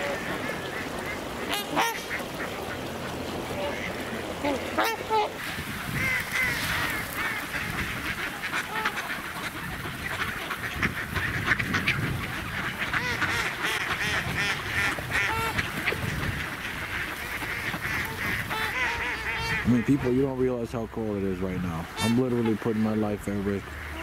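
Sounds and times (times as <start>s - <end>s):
flock of waterfowl calling: 0.0s - 24.0s.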